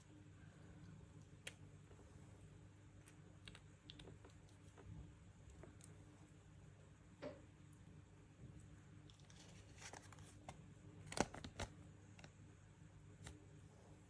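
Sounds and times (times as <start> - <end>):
paper crinkling: 9.1 - 12.4.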